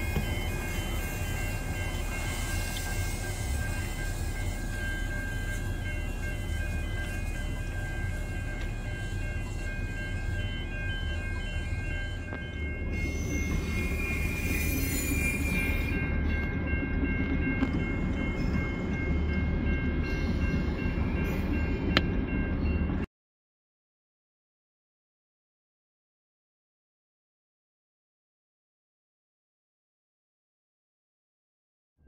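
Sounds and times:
train rumbling: 0:00.0 - 0:23.1
high squealing tones: 0:12.1 - 0:16.1.

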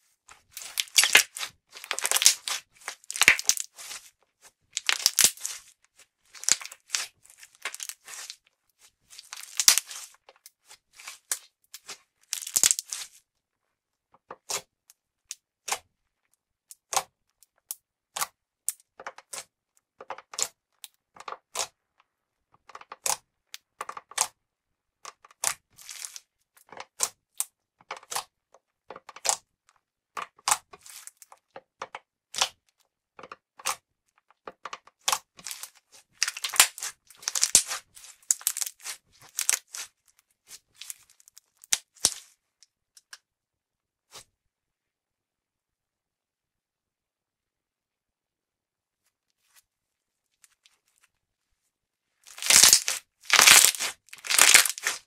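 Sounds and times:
slime popping and crackling: 0:00.5 - 0:04.1, 0:04.7 - 0:05.7, 0:06.3 - 0:08.4, 0:09.1 - 0:10.1, 0:11.0 - 0:13.2, 0:25.4 - 0:26.2, 0:35.0 - 0:39.9, 0:40.7 - 0:42.3, 0:52.3 - 0:55.0.

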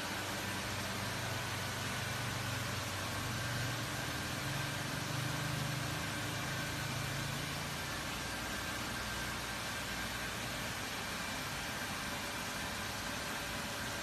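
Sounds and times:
constant hiss: 0:00.0 - 0:14.0
low mechanical hum: 0:00.0 - 0:14.0.

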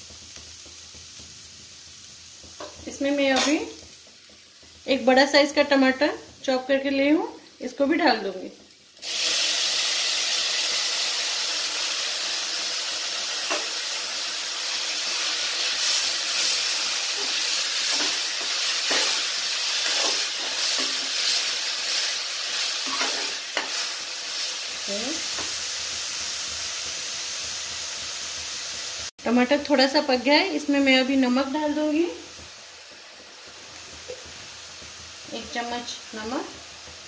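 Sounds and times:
tomato sizzling in hot oil: 0:00.0 - 0:37.0
spoon scraping metal pan: 0:17.2 - 0:22.0, 0:22.8 - 0:23.9.

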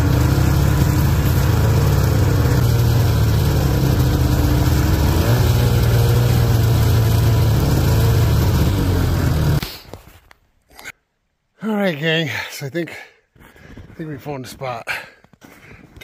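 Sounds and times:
snowmobile engine running: 0:00.0 - 0:09.6.

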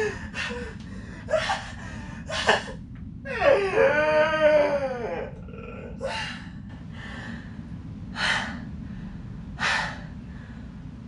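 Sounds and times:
man laughing: 0:02.3 - 0:02.8.

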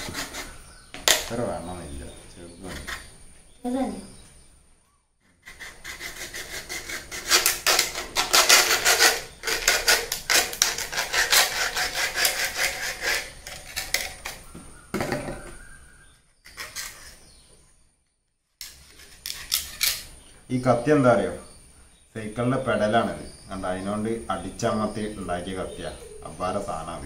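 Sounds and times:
knife sawing plastic bottle: 0:05.4 - 0:14.1.

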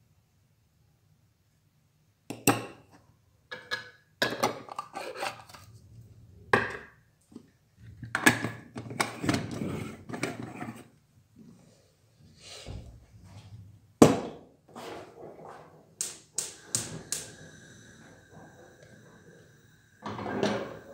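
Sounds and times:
kitchenware knocks and clinks: 0:03.5 - 0:04.9, 0:20.0 - 0:20.8.

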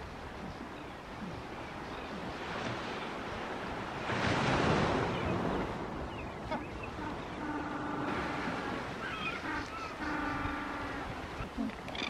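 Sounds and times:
surf washing onto beach: 0:00.0 - 0:09.8.

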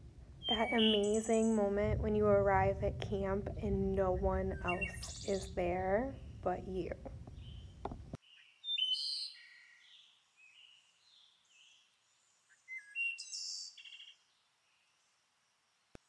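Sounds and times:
birds chirping and whistling: 0:00.3 - 0:02.6, 0:04.2 - 0:07.8, 0:08.7 - 0:09.6.

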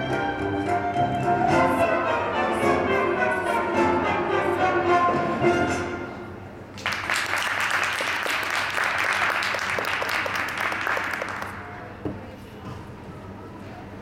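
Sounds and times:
music: 0:00.0 - 0:06.8
audience applause: 0:06.8 - 0:11.7.

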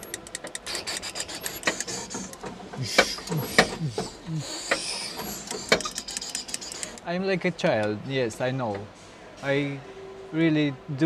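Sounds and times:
cockpit controls clicking and rattling: 0:05.2 - 0:07.0.

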